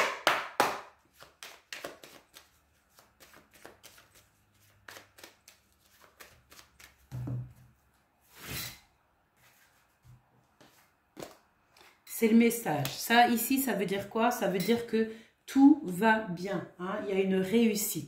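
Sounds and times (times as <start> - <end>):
cards being shuffled: 1.0 - 7.3.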